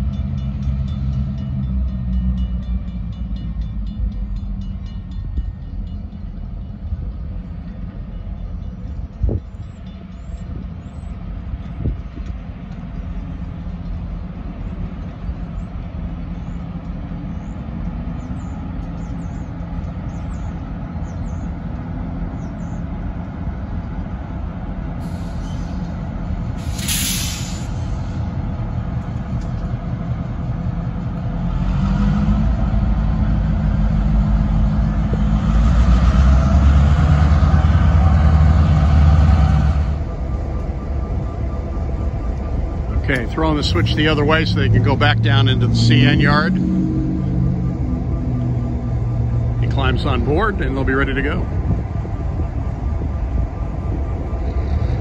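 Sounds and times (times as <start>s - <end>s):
diesel locomotives rumbling: 0.0s - 55.0s
air brake hiss: 25.0s - 25.9s, 26.6s - 28.2s.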